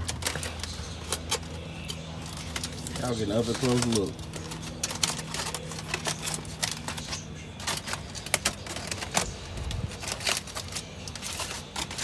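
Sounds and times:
aluminum foil crinkling: 0.0 - 12.0
low steady hum: 0.0 - 12.0.

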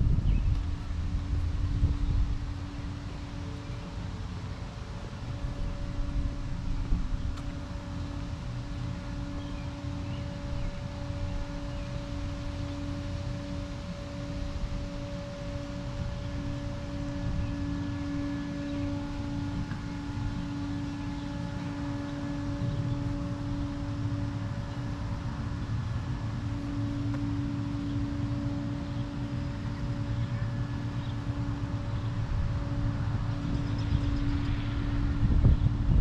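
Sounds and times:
low rumble: 0.0 - 36.0
steady hum: 0.0 - 36.0
wind buffeting microphone: 0.0 - 36.0.

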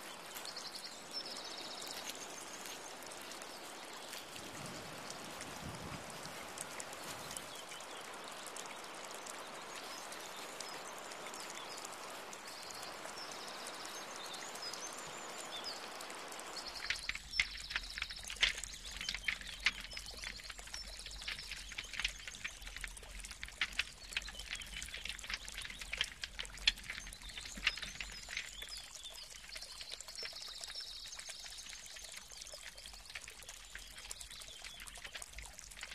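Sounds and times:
wood fire crackling and popping: 16.8 - 28.5.

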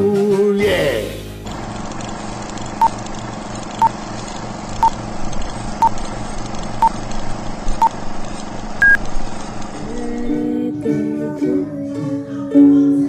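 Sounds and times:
short beeps: 8.8 - 9.0.

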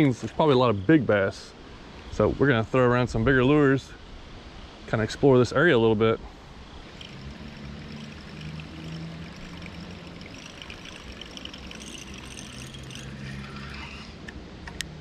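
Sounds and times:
low steady hum: 0.0 - 15.0
water trickling through spillway: 6.3 - 14.3.

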